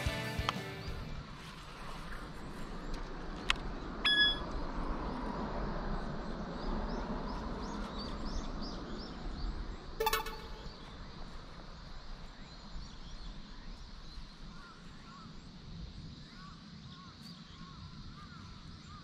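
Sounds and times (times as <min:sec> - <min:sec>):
low outdoor background: 0:00.0 - 0:19.0
short high beep: 0:04.1 - 0:04.4, 0:10.0 - 0:10.8.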